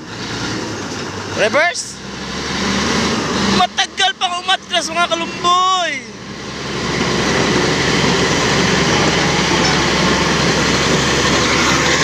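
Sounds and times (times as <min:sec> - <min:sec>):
diesel engine running under load: 0:00.0 - 0:12.0
steel tracks clattering over soil: 0:06.8 - 0:12.0.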